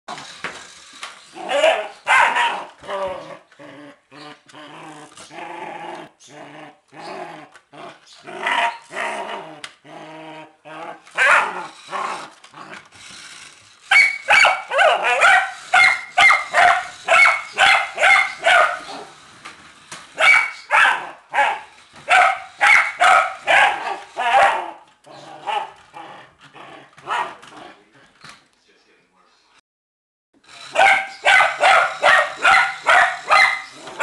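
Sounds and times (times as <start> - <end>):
puppy barking: 1.4 - 2.8, 11.2 - 11.8, 13.9 - 19.1, 20.2 - 24.8, 25.4 - 25.8, 27.0 - 27.4, 30.7 - 34.0.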